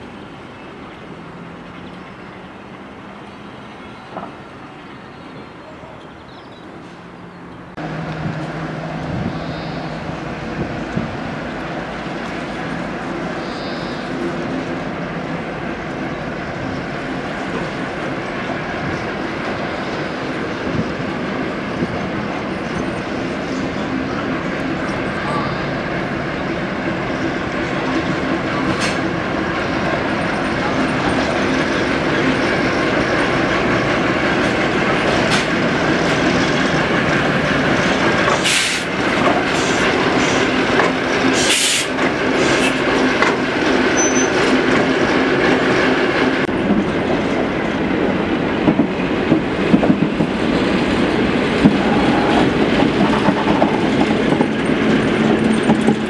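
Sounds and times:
diesel locomotive engine running: 7.0 - 56.0
wheels clicking over rail joints: 27.7 - 56.0.

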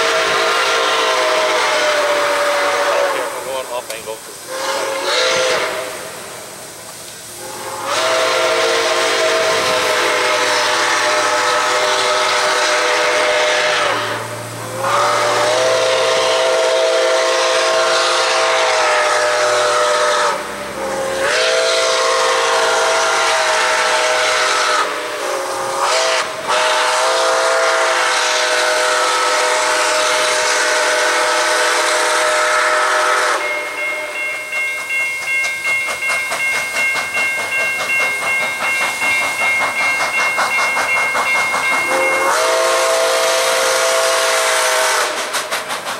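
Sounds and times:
steam locomotive whistle: 0.0 - 6.5, 7.2 - 45.9
locomotive exhaust chuffing: 0.0 - 45.9
steady high ringing tone: 33.4 - 42.3.

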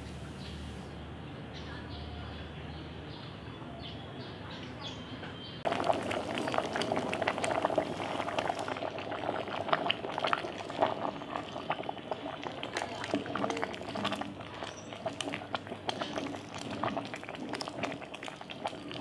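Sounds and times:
pot boiling hard: 5.6 - 19.0.

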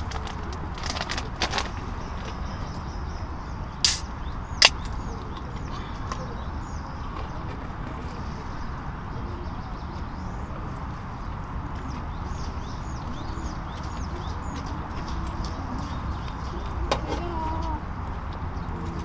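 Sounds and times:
small birds chirping: 1.5 - 18.9
short sharp noises: 3.8 - 4.9.

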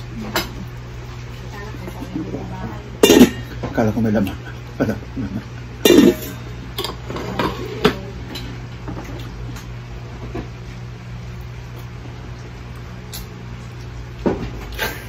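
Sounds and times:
steady low hum: 0.0 - 15.0
tableware clinks and knocks: 3.0 - 3.7, 5.9 - 8.0.

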